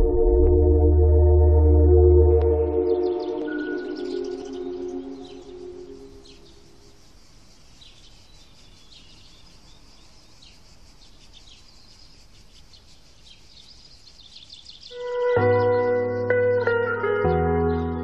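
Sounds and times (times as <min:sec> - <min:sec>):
small birds chirping: 0:02.9 - 0:18.0
plucked guitar music: 0:15.0 - 0:18.0.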